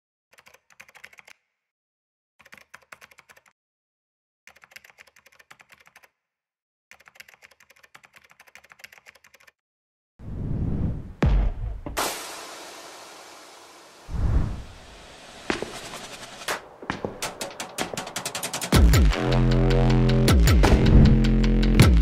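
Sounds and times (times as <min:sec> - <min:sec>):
keyboard typing clicks: 0:06.9 - 0:09.5.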